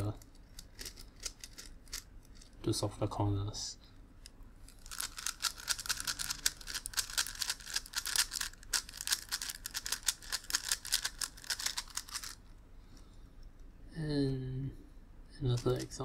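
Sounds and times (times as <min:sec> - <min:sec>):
fast plastic puzzle clicking: 0:00.0 - 0:02.5, 0:04.8 - 0:12.4.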